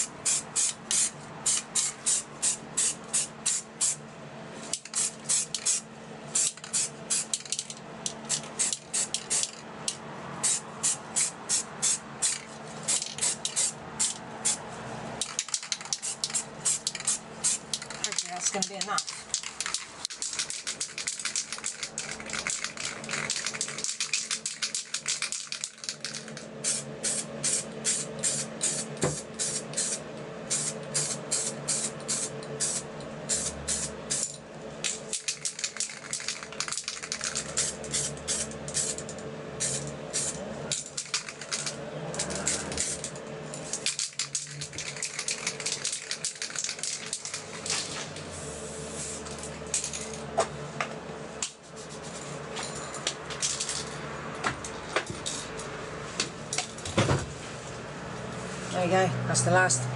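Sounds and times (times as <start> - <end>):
spray paint can hissing: 0.0 - 4.0, 4.7 - 9.6, 10.4 - 14.6, 15.2 - 47.7.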